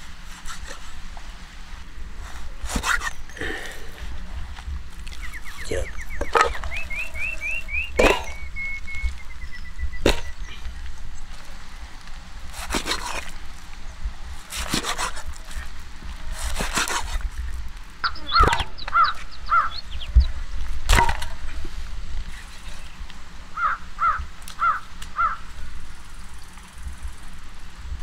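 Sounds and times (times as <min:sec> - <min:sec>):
birds chirping: 0:02.9 - 0:11.6, 0:18.0 - 0:20.4, 0:22.7 - 0:27.4.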